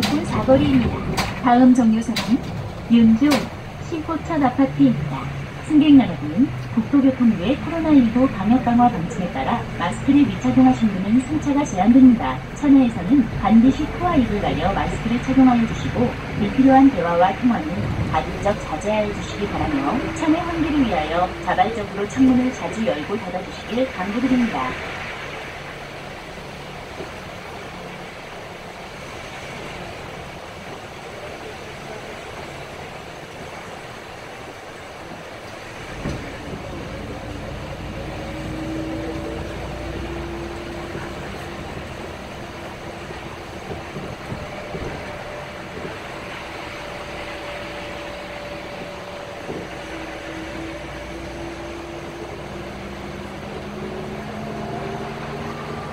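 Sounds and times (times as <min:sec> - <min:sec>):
bus engine and road noise: 0:00.0 - 0:55.9.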